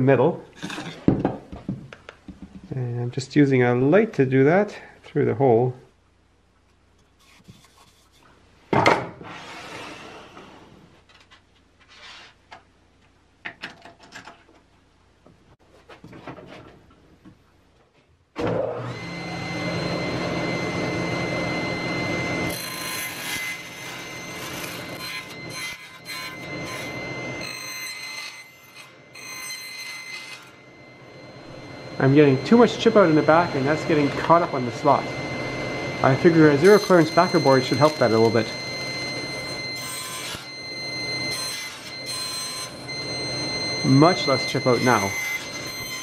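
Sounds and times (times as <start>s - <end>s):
table saw whining: 18.4s - 46.0s
saw cutting plywood: 21.6s - 30.6s, 36.0s - 46.0s.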